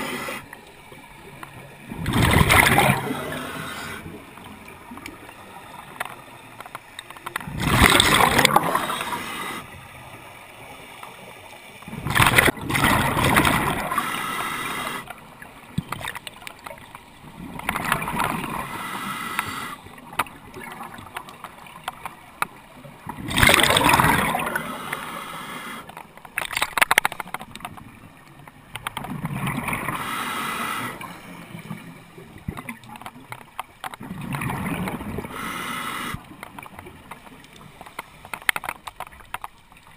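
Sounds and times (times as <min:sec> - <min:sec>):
underwater exhaled bubbles: 0:00.0 - 0:10.7, 0:11.8 - 0:21.4, 0:22.7 - 0:26.0, 0:27.6 - 0:33.3, 0:33.9 - 0:37.8.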